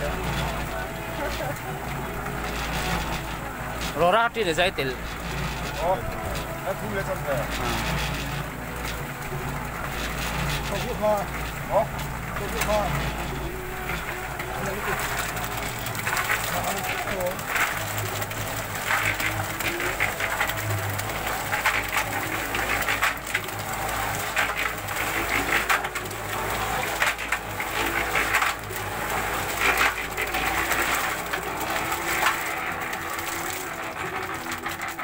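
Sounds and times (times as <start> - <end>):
concrete and gravel clattering: 0.0 - 35.0
concrete mixer motor hum: 0.0 - 35.0.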